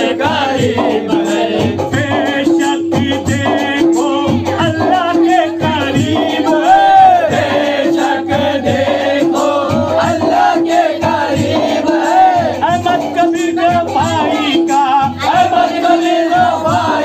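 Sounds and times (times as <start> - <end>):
men singing chant together: 0.0 - 17.0
lead voice through microphone: 12.4 - 17.0.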